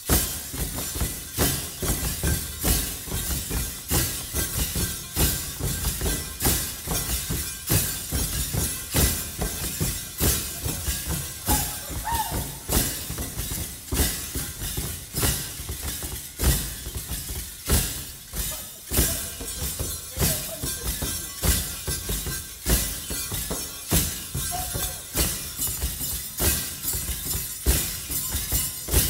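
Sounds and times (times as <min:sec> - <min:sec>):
feet stamping: 0:00.0 - 0:29.0
metal ankle rattles jingling: 0:00.0 - 0:29.0.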